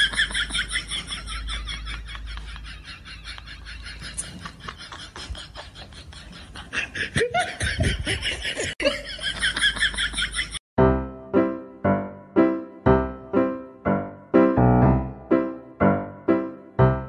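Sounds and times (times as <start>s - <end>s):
person laughing: 0.0s - 10.6s.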